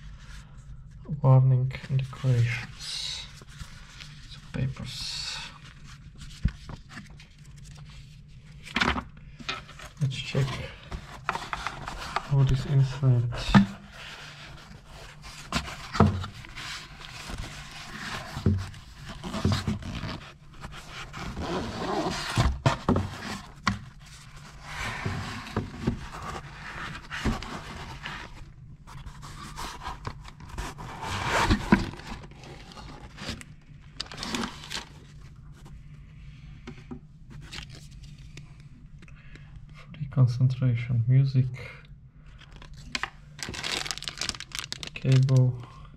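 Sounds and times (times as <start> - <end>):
cloth rubbing against cardboard: 13.8 - 33.2.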